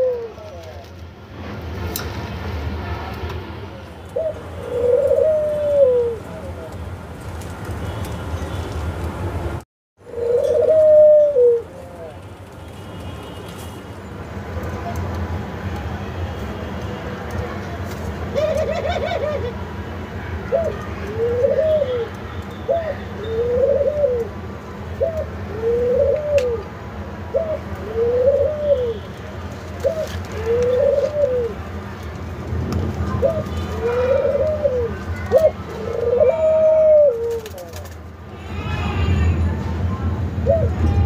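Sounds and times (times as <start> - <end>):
doves cooing: 4.2 - 6.3, 10.0 - 11.7, 18.3 - 19.6, 20.5 - 22.1, 22.7 - 24.4, 25.0 - 26.7, 27.3 - 29.0, 29.8 - 31.6, 33.2 - 37.9.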